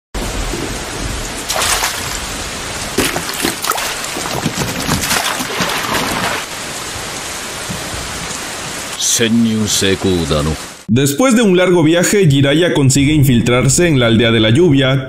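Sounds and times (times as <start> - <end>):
rain falling: 0.2 - 10.9
water splashing: 0.2 - 10.9.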